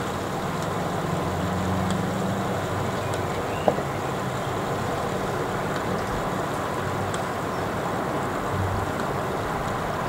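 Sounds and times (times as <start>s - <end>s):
heavy rain hissing: 0.0s - 10.0s.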